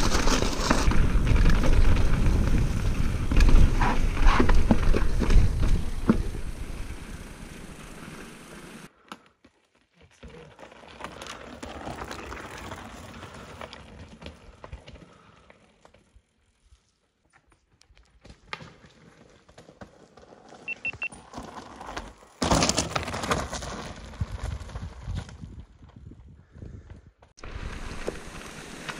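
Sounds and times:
bike knocks and rattles: 0:00.0 - 0:08.9
bike tyres crunching over stones: 0:00.0 - 0:26.6, 0:27.4 - 0:28.9.

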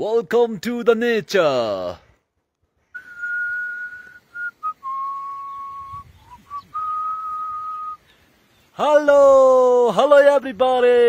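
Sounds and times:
man whistling: 0:02.9 - 0:08.1.

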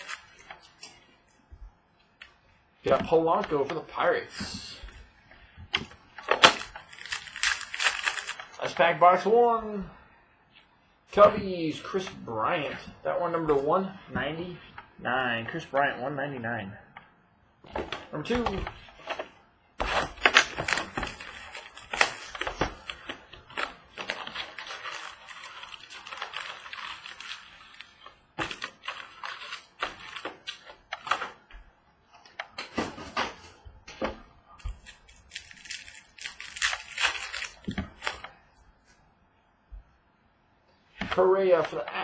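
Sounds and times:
foil wrappers crinkling: 0:00.0 - 0:01.0, 0:06.3 - 0:08.9, 0:19.8 - 0:30.8, 0:34.8 - 0:38.3.

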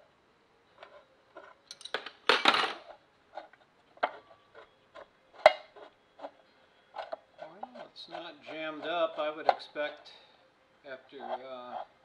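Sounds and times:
wrench and bolts clinking on metal: 0:01.7 - 0:02.8.

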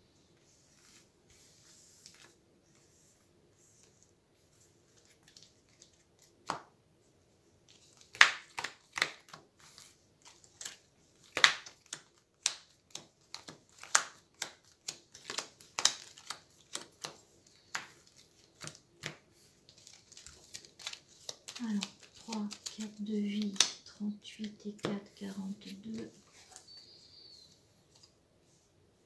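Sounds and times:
playing cards slapping on table: 0:06.4 - 0:06.7, 0:08.1 - 0:09.4, 0:10.6 - 0:19.2.

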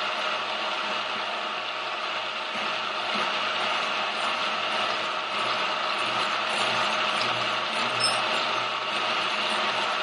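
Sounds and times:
milling machine cutting metal: 0:02.6 - 0:10.0.

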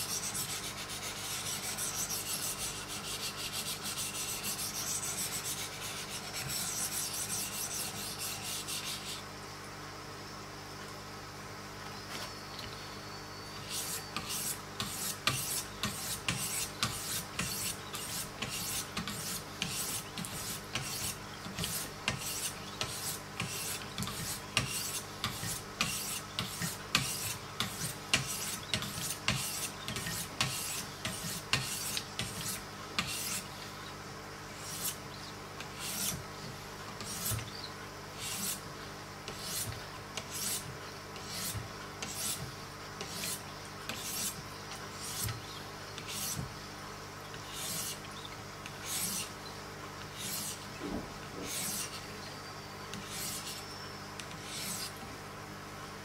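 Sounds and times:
sharpening stone rasping on knife: 0:47.5 - 0:48.0, 0:48.8 - 0:49.3, 0:50.2 - 0:50.6, 0:51.5 - 0:52.0, 0:53.0 - 0:53.7, 0:54.4 - 0:54.9.

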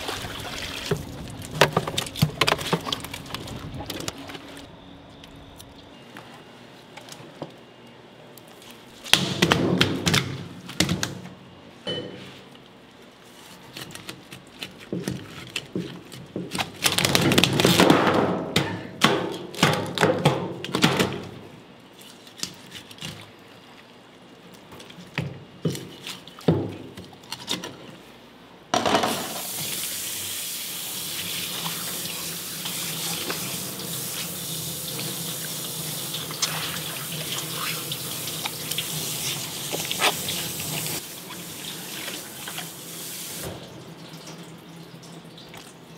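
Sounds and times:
tap water running and splashing: 0:00.0 - 0:03.6, 0:29.3 - 0:45.8.

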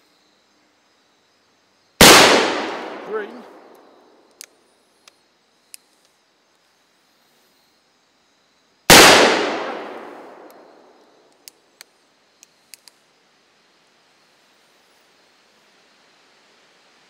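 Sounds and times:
revolver gunshot: 0:02.0 - 0:03.8, 0:08.9 - 0:10.6.

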